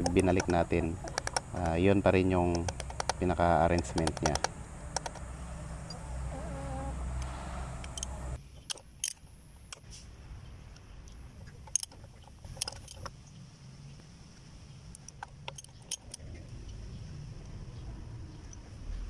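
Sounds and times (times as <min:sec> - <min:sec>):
ratchet wrench metallic clicks: 0:00.0 - 0:05.3, 0:07.8 - 0:09.8, 0:11.7 - 0:13.1.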